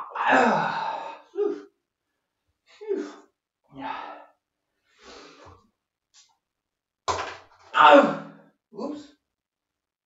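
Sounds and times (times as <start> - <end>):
man groaning and grunting: 0.0 - 1.6, 7.8 - 9.1.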